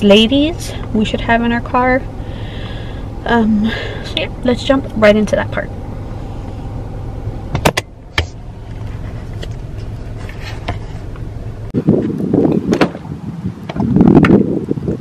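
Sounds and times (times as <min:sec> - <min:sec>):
low vehicle hum: 0:00.0 - 0:14.2
wind buffeting microphone: 0:00.0 - 0:15.0.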